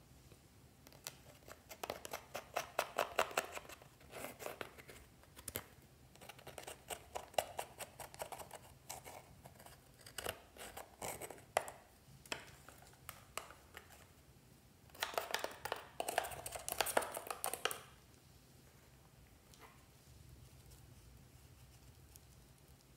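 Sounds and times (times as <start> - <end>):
spatula scraping eyeshadow: 6.2 - 11.8.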